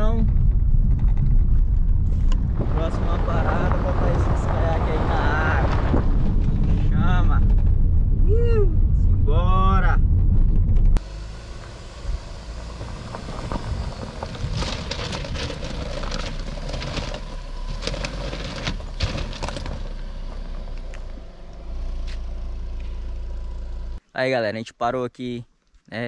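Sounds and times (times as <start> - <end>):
knocks and rattles: 0.0 - 7.9, 12.8 - 20.5
car engine and tyre rumble: 0.0 - 24.1.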